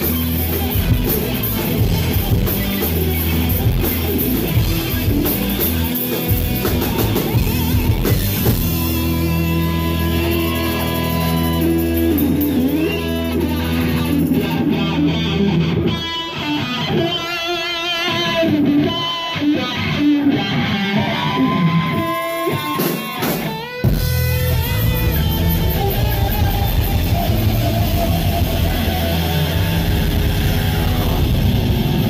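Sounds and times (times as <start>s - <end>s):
low bass notes: 0.0s - 16.0s, 23.8s - 32.0s
electric guitar lead lines: 0.0s - 32.0s
live rock band: 0.0s - 32.0s.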